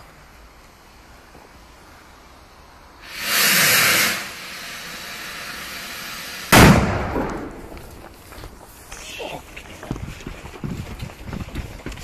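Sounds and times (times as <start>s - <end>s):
firework hissing rush: 3.0s - 7.6s
firework sharp bang: 6.0s - 8.0s.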